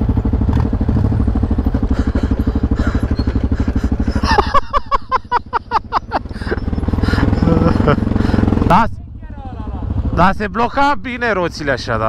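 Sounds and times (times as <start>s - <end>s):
atv engine running: 0.0s - 12.0s
squeaky chirps: 2.8s - 3.6s, 6.2s - 7.6s.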